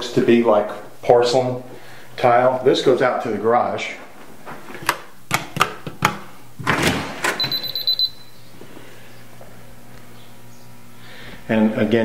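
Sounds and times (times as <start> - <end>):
door pushed open: 6.6 - 7.7
rapid high electronic beeps: 7.4 - 8.4.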